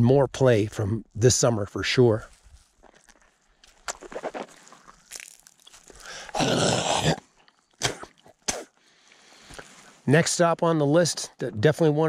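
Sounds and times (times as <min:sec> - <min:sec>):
boots crunching on gravel: 0:02.2 - 0:06.2.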